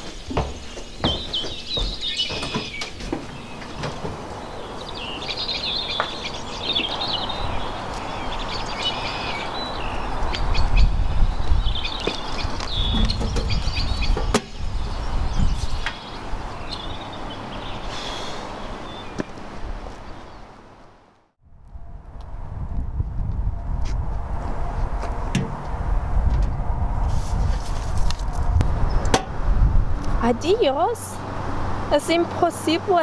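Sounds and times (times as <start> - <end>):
small birds chirping: 0.0 - 20.6
low rumble: 21.4 - 30.3.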